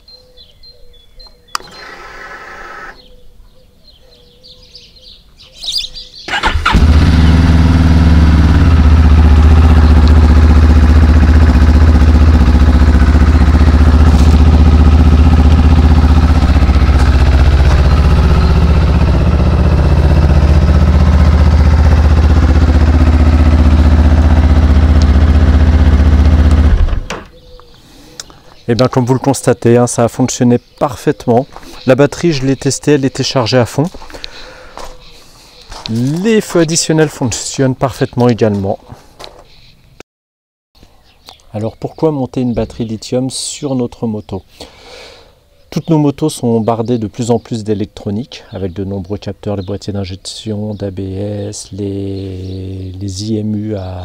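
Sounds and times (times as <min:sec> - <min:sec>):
starter motor cranking: 0:01.5 - 0:03.0, 0:06.3 - 0:07.4
ignition whir: 0:01.5 - 0:03.1, 0:06.3 - 0:07.8, 0:24.7 - 0:27.3
motorcycle engine idling: 0:06.3 - 0:27.5.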